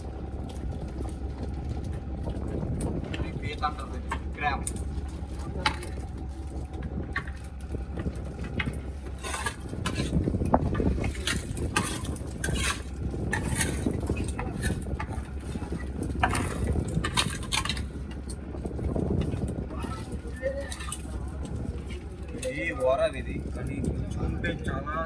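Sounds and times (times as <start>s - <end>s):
fish knocking and slapping: 0.0s - 23.8s
boat engine humming: 0.0s - 25.0s.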